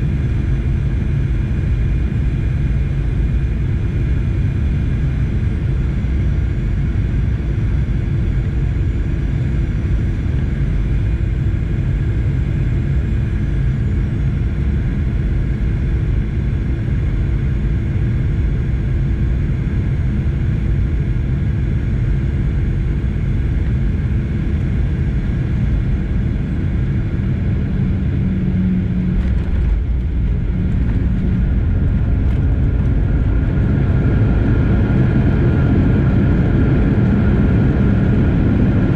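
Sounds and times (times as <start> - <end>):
airliner engines and airflow rumble: 0.0 - 38.9
steady engine tones: 21.6 - 38.9
higher whine: 22.8 - 38.9.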